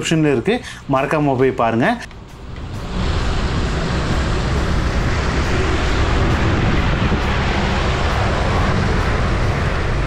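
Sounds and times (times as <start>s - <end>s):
vehicle rumble: 2.0s - 10.0s
tyres hissing on wet road: 2.6s - 10.0s.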